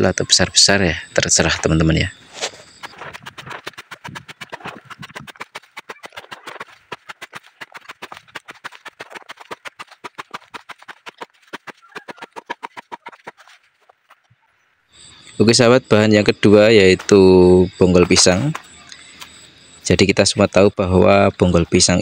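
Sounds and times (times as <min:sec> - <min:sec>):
blade chopping stems on wood: 0:02.4 - 0:13.6.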